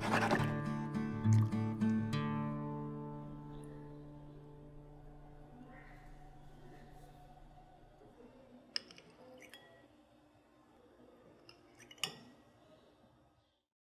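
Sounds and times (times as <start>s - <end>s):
faint steady background noise: 1.8s - 13.7s
metal spoon clinking ceramic bowl: 11.5s - 12.3s.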